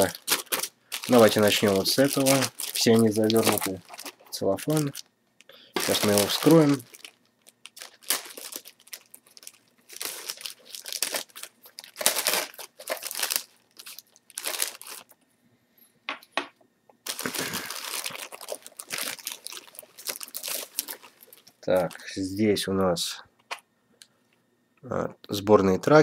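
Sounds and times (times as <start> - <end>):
cellophane bag crinkling: 0.0 - 5.1, 5.8 - 15.2, 17.0 - 22.2.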